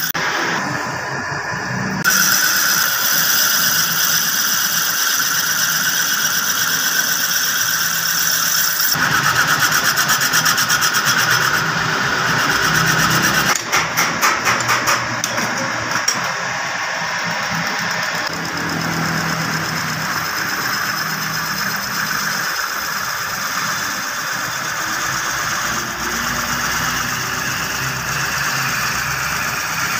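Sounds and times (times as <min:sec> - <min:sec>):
lathe motor hum: 0:00.0 - 0:29.9
tool scraping wood on lathe: 0:02.0 - 0:16.4.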